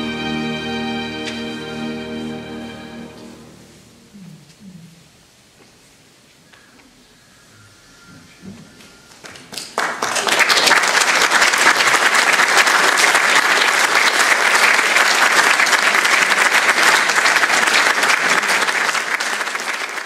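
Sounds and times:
audience applauding: 9.1 - 20.0.

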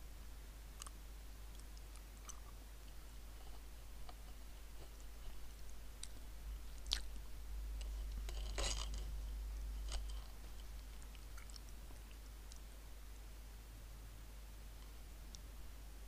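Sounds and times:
low steady hum: 0.0 - 16.0
crackly rustle: 0.7 - 12.8.

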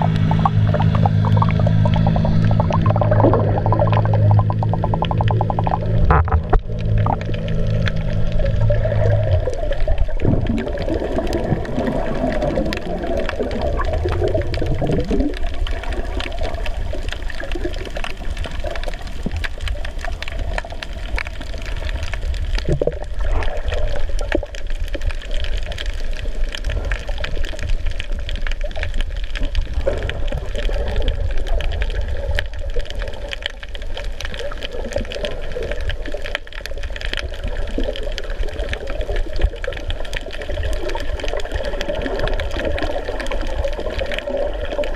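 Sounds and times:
underwater rumble of moving water: 0.0 - 44.9.

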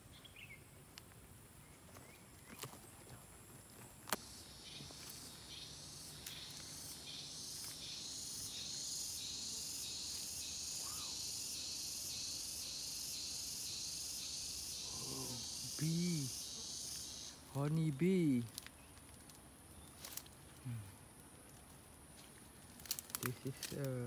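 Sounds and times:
insects shrilling: 3.6 - 24.0.

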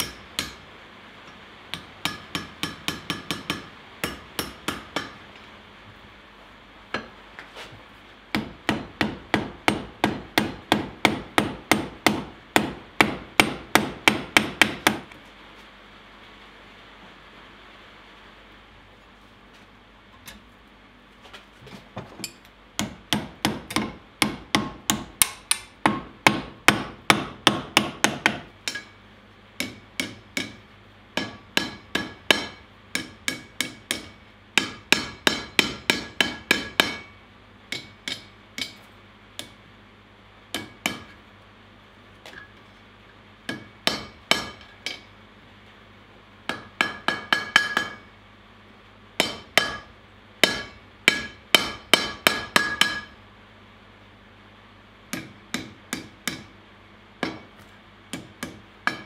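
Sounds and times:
hammer striking steel on anvil: 0.0 - 0.7, 1.7 - 5.5, 8.3 - 15.1, 22.2 - 29.0, 29.6 - 39.6, 40.5 - 41.2, 43.5 - 45.2, 46.5 - 48.1, 49.2 - 53.2, 55.1 - 56.6, 57.2 - 59.0.

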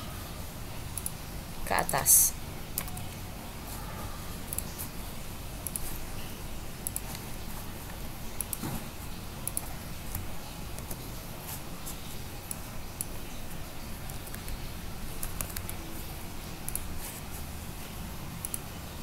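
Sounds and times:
low background hum: 0.0 - 19.0
keyboard clicks: 5.6 - 5.9, 6.8 - 7.2, 8.4 - 8.6, 9.4 - 11.0, 15.2 - 15.8, 16.7 - 16.9
computer mouse clicks: 5.6 - 6.0, 6.8 - 7.3, 8.4 - 8.6, 9.4 - 11.0, 15.2 - 15.8, 16.7 - 16.9, 18.4 - 18.6.

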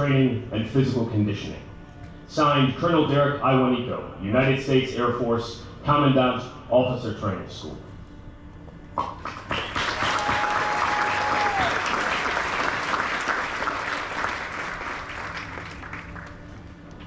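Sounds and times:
audience applauding: 9.1 - 16.7.

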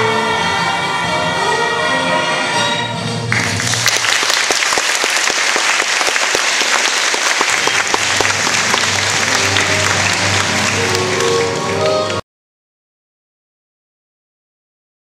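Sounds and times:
music: 0.0 - 4.4, 7.5 - 12.2
audience applause: 3.3 - 12.2.

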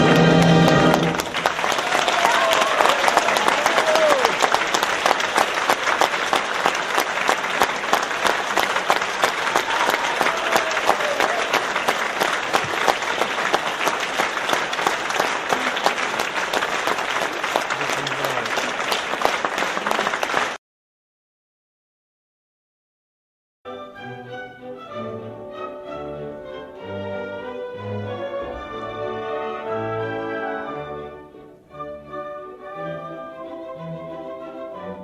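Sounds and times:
audience applauding: 0.0 - 20.6.

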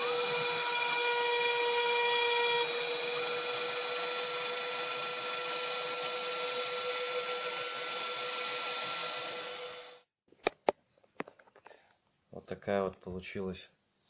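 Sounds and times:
router engraving wood: 0.0 - 10.1.

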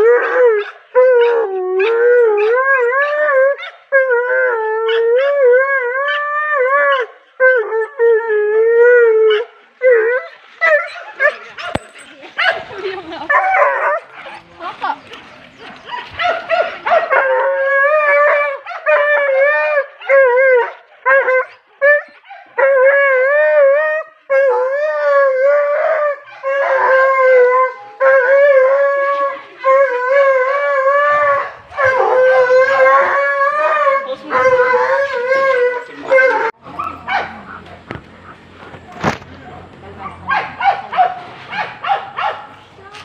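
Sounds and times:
dog howling: 22.6 - 36.6.

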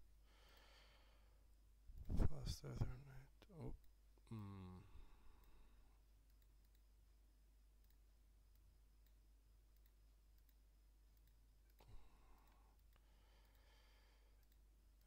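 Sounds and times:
low steady hum: 0.0 - 15.0
computer mouse clicks: 6.2 - 6.9, 7.8 - 13.7, 14.3 - 15.0.

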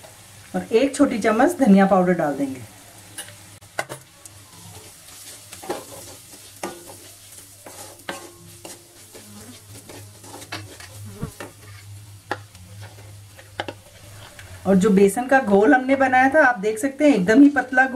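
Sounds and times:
frying sizzle: 0.0 - 17.9
wooden spatula scraping pan: 4.7 - 14.6.

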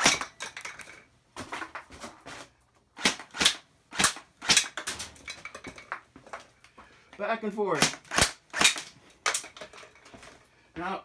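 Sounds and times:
plastic targets hit and toppling: 0.0 - 6.4, 7.7 - 10.3
airsoft rifle shots: 3.0 - 4.9, 7.8 - 9.4.

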